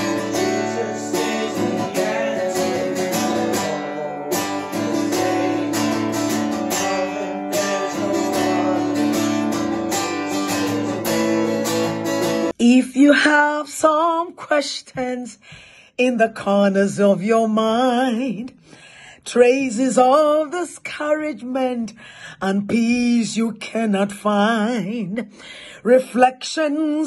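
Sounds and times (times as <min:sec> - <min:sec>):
strummed acoustic guitar: 0:00.0 - 0:12.5
person singing: 0:00.0 - 0:15.4.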